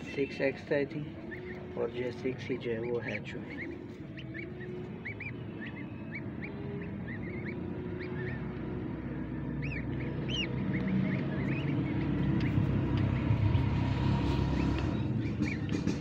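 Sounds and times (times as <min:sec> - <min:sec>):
ducklings peeping: 0:00.0 - 0:16.0
low rumble: 0:03.4 - 0:16.0.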